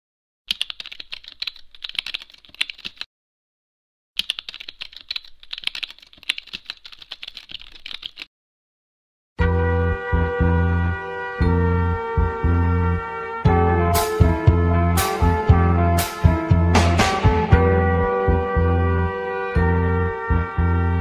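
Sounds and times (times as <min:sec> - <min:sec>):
rapid keyboard typing clicks: 0:00.5 - 0:03.1, 0:04.2 - 0:08.3.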